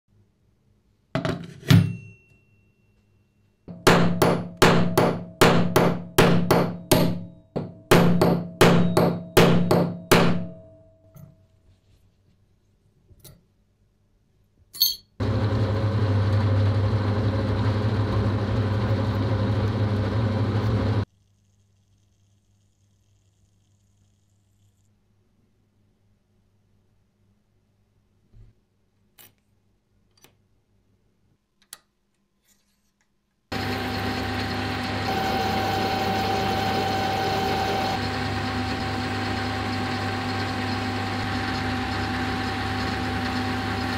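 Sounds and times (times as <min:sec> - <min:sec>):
click: 0:31.6 - 0:32.2
drilling machine drilling steel: 0:33.5 - 0:43.9.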